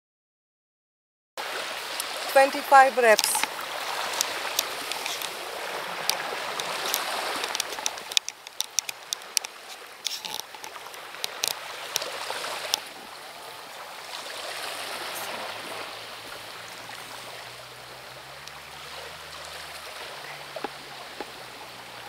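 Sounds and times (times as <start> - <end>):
waves washing onto pebbles: 1.4 - 22.0.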